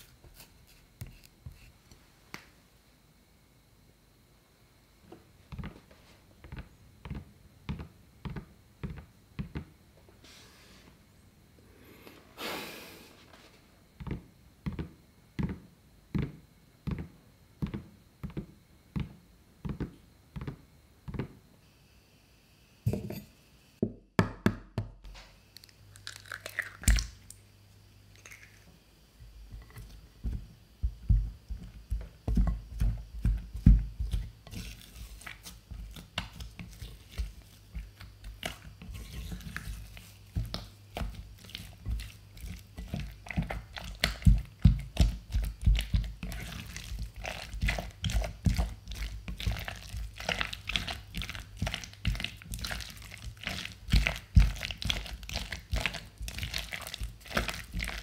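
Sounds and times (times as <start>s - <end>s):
spatula mixing sticky dough: 0.0s - 1.9s, 29.2s - 58.0s
egg cracking: 25.5s - 27.4s, 28.1s - 28.7s.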